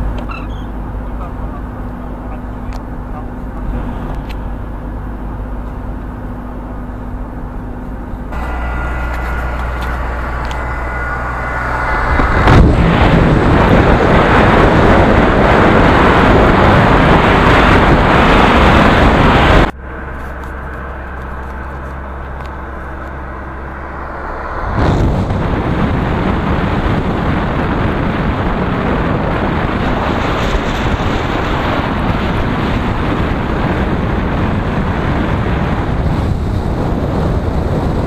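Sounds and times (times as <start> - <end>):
car driving on wet road: 0.0 - 38.0
wind rush and tyre spray: 8.3 - 38.0.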